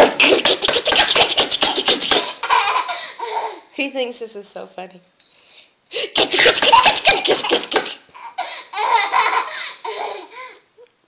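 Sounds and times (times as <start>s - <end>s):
baby laughing: 0.0s - 3.7s, 6.0s - 10.5s.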